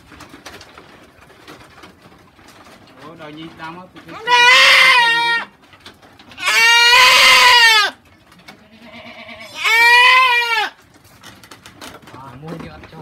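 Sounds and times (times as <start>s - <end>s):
goat bleating loudly: 4.1s - 5.5s, 6.3s - 10.8s.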